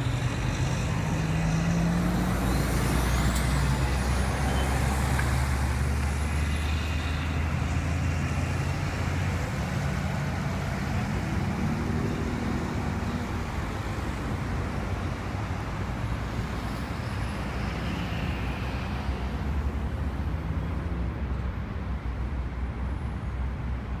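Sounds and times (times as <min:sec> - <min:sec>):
bus engine rumbling: 0:00.0 - 0:24.0
cars passing slowly: 0:00.0 - 0:24.0
highway traffic noise: 0:00.0 - 0:24.0.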